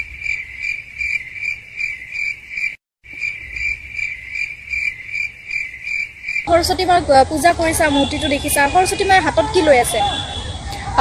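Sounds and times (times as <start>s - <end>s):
cricket chirping: 0.0s - 6.6s.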